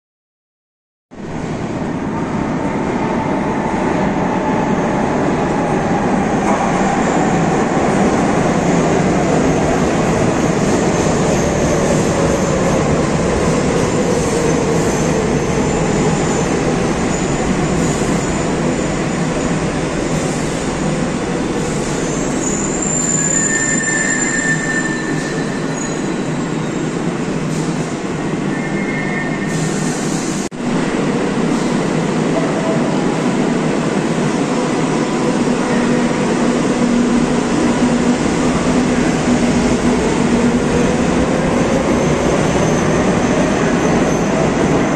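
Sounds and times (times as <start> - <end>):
high-pitched brake squeals: 22.0 - 26.9, 28.5 - 29.9.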